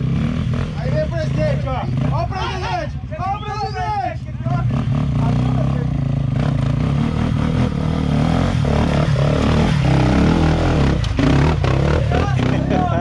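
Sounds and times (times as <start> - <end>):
dirt bike engine revving: 0.0 - 2.7, 4.4 - 13.0.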